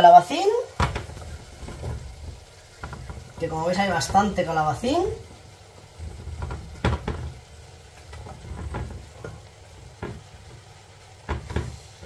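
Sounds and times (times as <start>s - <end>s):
faint sizzle in a pot: 0.0s - 12.0s
utensil knocking against pot: 6.3s - 7.4s, 8.0s - 11.8s.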